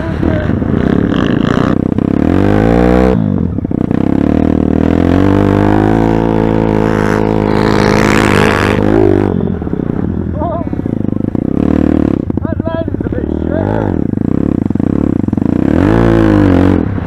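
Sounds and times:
motorbike engine revving: 0:00.0 - 0:17.0.

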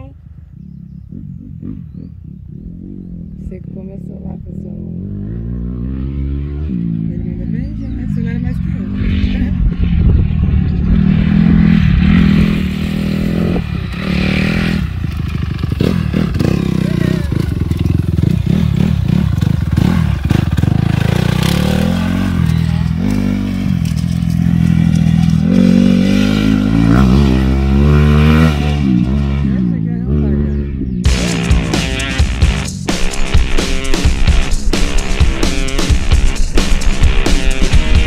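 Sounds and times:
motocross bike engine revving: 0:04.1 - 0:38.0.

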